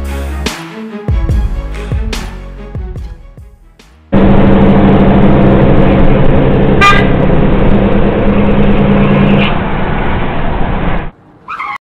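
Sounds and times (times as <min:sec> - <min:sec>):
vehicle engine running: 0:04.1 - 0:10.0
horn toot: 0:06.8 - 0:07.2.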